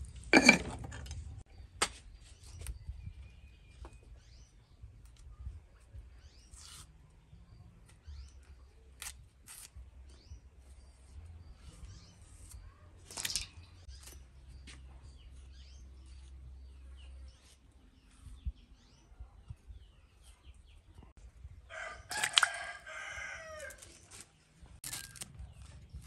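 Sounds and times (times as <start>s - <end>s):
small birds chirping: 1.4s - 26.0s
knife scraping banana peel: 9.0s - 9.7s.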